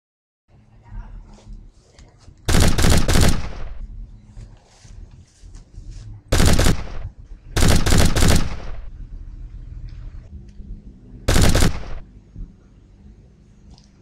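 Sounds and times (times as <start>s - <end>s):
automatic gunfire bursts: 2.5s - 3.8s, 6.3s - 8.9s, 11.3s - 12.0s.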